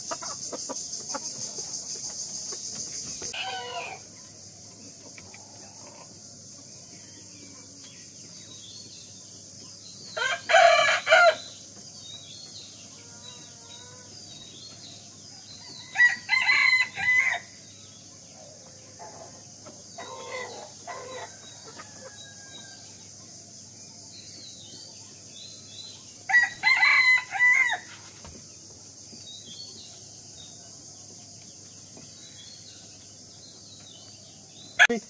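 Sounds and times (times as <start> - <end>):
rooster crowing: 3.3 - 4.1, 10.2 - 11.5, 15.6 - 17.6, 20.0 - 23.0, 26.3 - 27.9.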